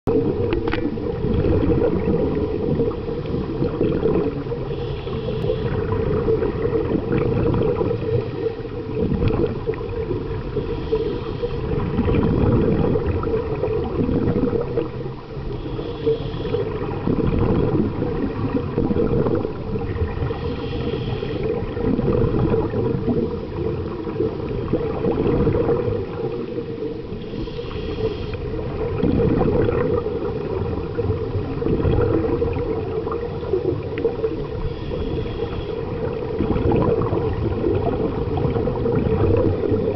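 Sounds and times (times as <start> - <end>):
low underwater rumble: 0.1 - 39.9
diver breathing through regulator: 4.6 - 6.0, 10.4 - 11.8, 15.4 - 16.8, 20.2 - 21.6, 27.1 - 28.6, 34.4 - 36.2.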